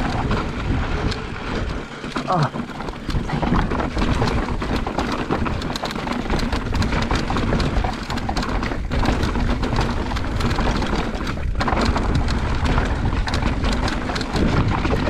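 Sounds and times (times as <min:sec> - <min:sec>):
bike rattling: 0:00.0 - 0:15.0
wind rumble on microphone: 0:00.0 - 0:15.0.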